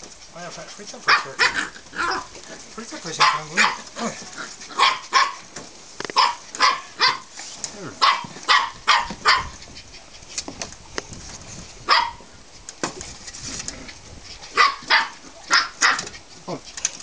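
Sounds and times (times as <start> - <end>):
puppies barking: 0.8 - 7.4, 8.0 - 9.8, 11.8 - 12.3, 13.9 - 16.5.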